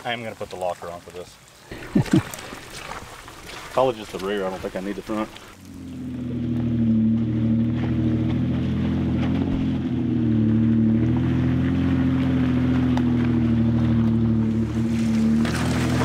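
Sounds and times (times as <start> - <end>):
car engine pulling at low revs: 4.7 - 16.0
stones clicking under tyres: 12.4 - 13.4.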